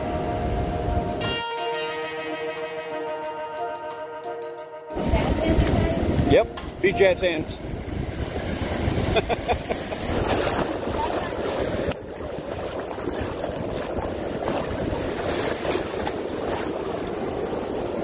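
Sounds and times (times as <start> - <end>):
ocean surf breaking: 4.9 - 18.0
wind rumbling on microphone: 5.0 - 18.0.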